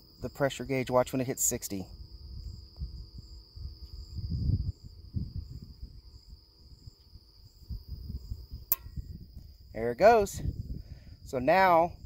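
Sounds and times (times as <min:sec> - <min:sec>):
insects buzzing: 0:00.0 - 0:12.0
wind rumble on microphone: 0:01.5 - 0:12.0.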